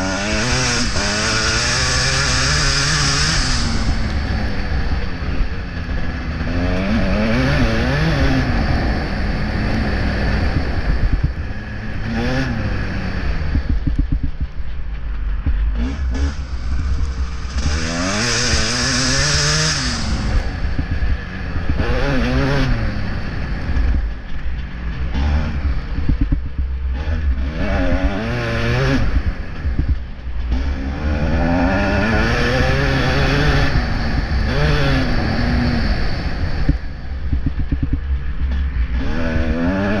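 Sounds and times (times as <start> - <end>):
motocross bike engine revving: 0.0 - 40.0
wind rumble on microphone: 0.0 - 40.0.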